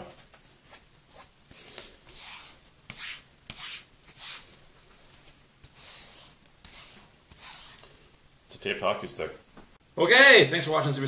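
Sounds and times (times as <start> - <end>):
hand rubbing tape: 0.2 - 7.9.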